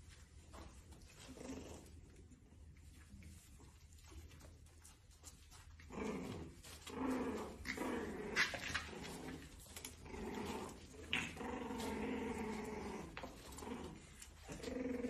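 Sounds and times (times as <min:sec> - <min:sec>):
puppies grunting and growling: 0:00.6 - 0:04.6, 0:05.3 - 0:15.0.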